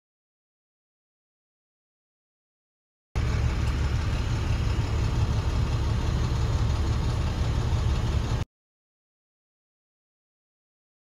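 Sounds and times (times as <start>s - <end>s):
engine and road rumble: 3.2s - 8.5s.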